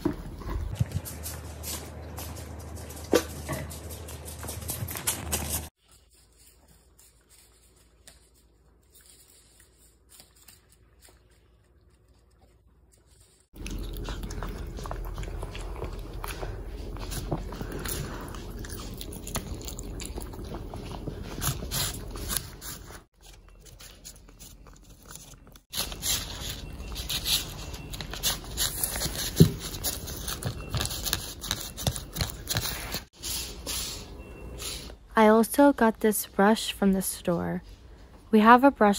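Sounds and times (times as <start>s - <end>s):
dogs chewing and crunching: 0.0s - 34.9s
dogs licking and smacking: 9.9s - 22.3s.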